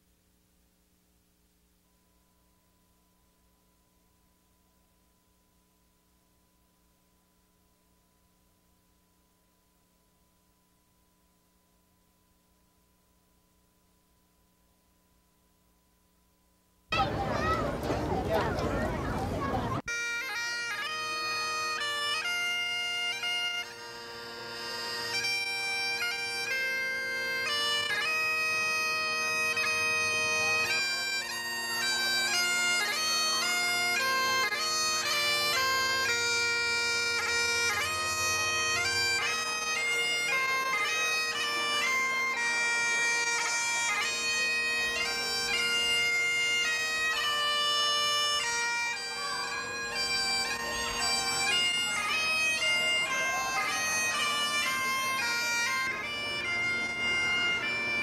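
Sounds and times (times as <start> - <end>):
bagpipe drones: 16.9 - 58.0
bagpipe melody: 17.0 - 58.0.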